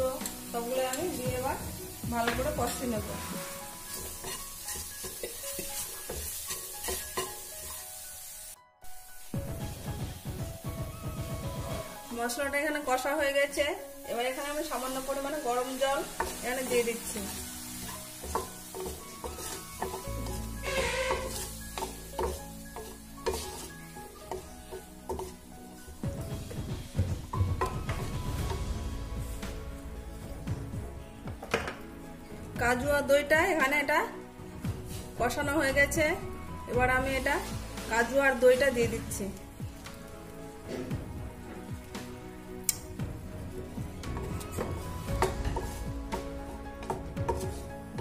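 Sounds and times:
spices sizzling in oil: 0:00.0 - 0:48.0
wooden spatula scraping a pan: 0:00.1 - 0:07.8, 0:11.4 - 0:12.2, 0:14.7 - 0:28.6, 0:34.8 - 0:35.2, 0:37.0 - 0:38.9, 0:43.7 - 0:48.0.

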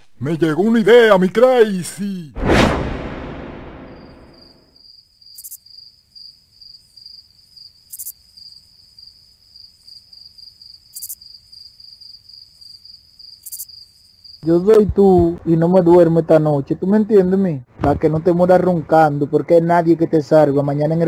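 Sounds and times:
whoosh: 0:02.3 - 0:04.7
crickets chirping: 0:03.9 - 0:14.5.

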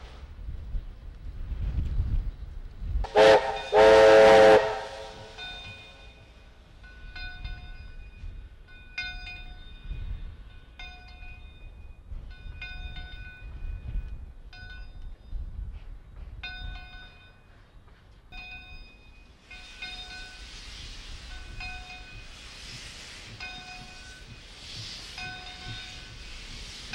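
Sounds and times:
loud hiss of steam: 0:03.0 - 0:06.0, 0:19.4 - 0:26.9
steam locomotive bell ringing: 0:03.1 - 0:15.6, 0:16.4 - 0:26.9
steam engine chuffing: 0:19.5 - 0:26.9.

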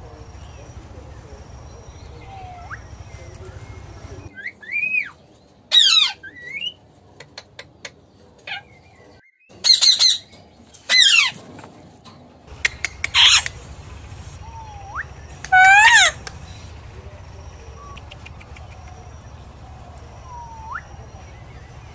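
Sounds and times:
parakeets squawking: 0:00.2 - 0:04.3, 0:10.9 - 0:11.4, 0:12.5 - 0:21.9
sharp ticks: 0:12.5 - 0:21.9.

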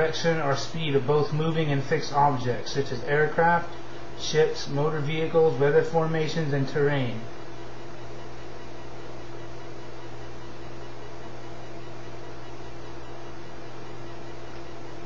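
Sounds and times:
constant hiss: 0:00.0 - 0:07.6
electrical hum: 0:00.0 - 0:15.0.

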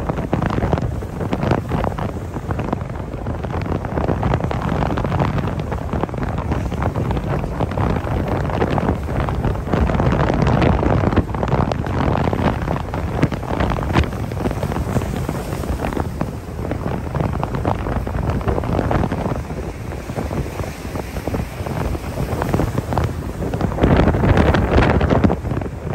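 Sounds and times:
heavy surf breaking on rocks: 0:00.0 - 0:25.9
wind buffeting microphone: 0:00.0 - 0:25.9.

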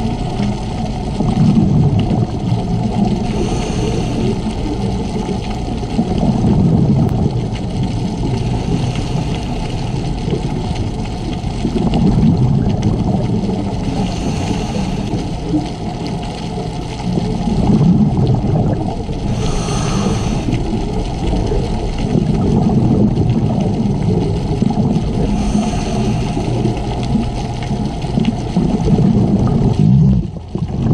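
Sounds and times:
underwater bubbling exhalation: 0:00.0 - 0:30.9
regulator inhalation hiss: 0:03.3 - 0:04.5, 0:13.9 - 0:15.3, 0:19.2 - 0:20.6, 0:25.2 - 0:26.8.

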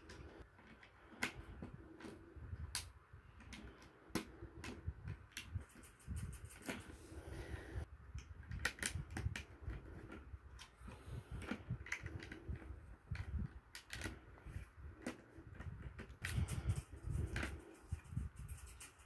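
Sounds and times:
plastic bricks clicking: 0:11.4 - 0:14.2.

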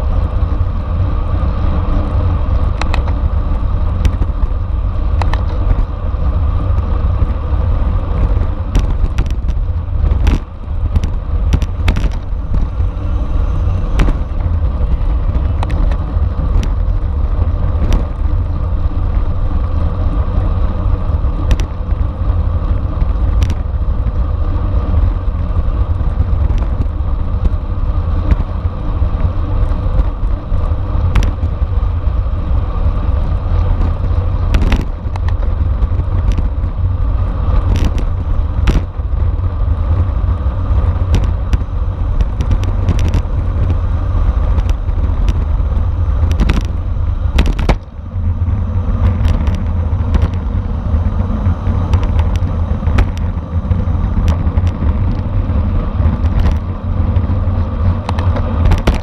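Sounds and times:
wind rumble on microphone: 0:00.0 - 0:59.0
sharp clicks and knocks: 0:02.7 - 0:03.3, 0:04.0 - 0:05.9, 0:08.1 - 0:12.8, 0:13.9 - 0:17.0, 0:17.8 - 0:18.3, 0:21.4 - 0:22.0, 0:23.0 - 0:23.7, 0:33.8 - 0:36.7, 0:37.6 - 0:39.2, 0:40.8 - 0:43.8, 0:44.4 - 0:45.6, 0:46.2 - 0:48.0, 0:49.0 - 0:50.6, 0:51.4 - 0:55.4, 0:56.0 - 0:57.3, 0:58.0 - 0:59.0.

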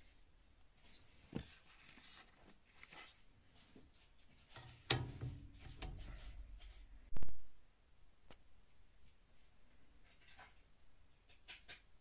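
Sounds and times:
pipe fitting clicks and scrapes: 0:04.4 - 0:07.0
brief rattle: 0:04.5 - 0:07.0
sharp click: 0:04.6 - 0:06.8.

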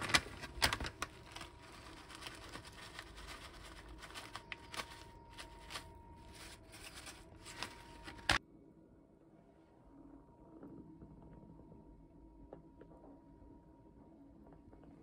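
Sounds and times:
plastic pouch crinkling: 0:00.0 - 0:08.4.

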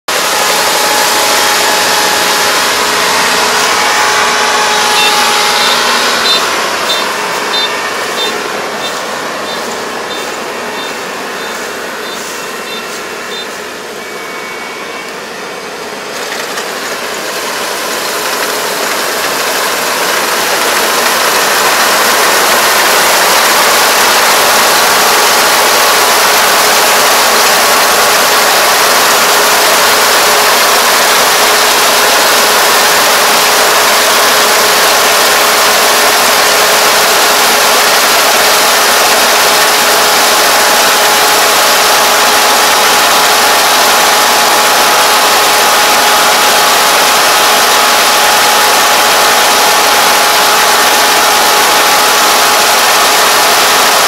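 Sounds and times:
combine harvester drone: 0:00.0 - 0:54.0.

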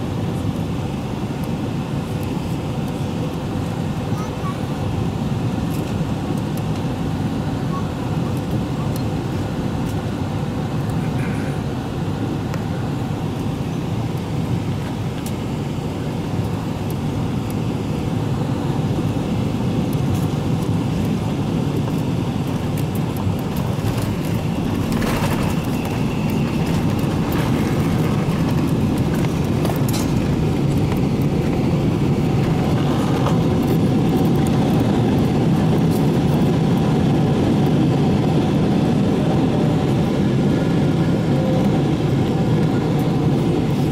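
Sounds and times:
airplane cabin airflow and engines: 0:00.0 - 0:43.9
wheels thumping on runway: 0:23.5 - 0:31.7.

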